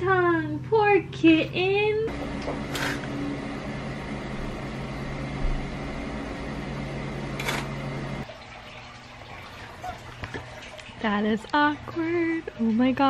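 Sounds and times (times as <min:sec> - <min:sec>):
machine humming: 0:02.0 - 0:08.2.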